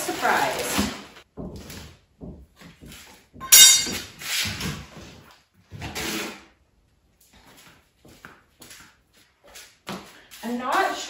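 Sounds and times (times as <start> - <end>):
drywall scraping and crunching: 0.0 - 2.0, 3.9 - 6.6.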